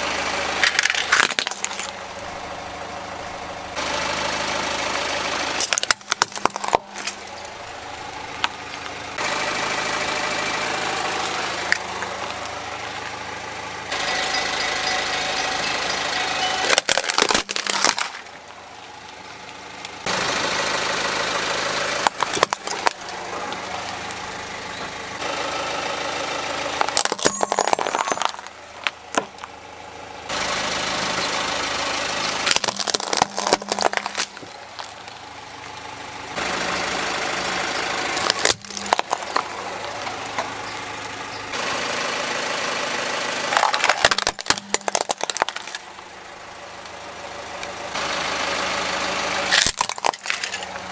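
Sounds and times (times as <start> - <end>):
car engine idling: 0.0 - 50.9
plastic toys crushed by tyre: 0.6 - 2.0, 5.6 - 7.6, 16.4 - 18.6, 21.9 - 24.0, 26.7 - 29.6, 32.4 - 35.2, 38.2 - 40.6, 43.5 - 46.1, 49.5 - 50.9.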